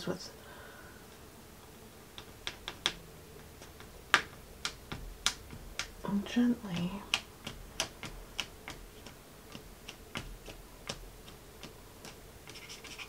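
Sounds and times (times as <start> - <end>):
eraser rubbing on paper: 8.0 - 13.0.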